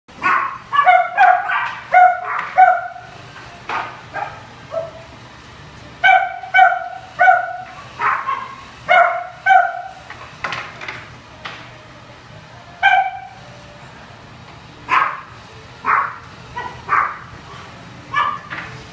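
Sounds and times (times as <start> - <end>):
small dog barking: 0.2 - 3.0, 4.2 - 5.0, 6.0 - 10.0, 14.9 - 17.2, 18.1 - 18.5.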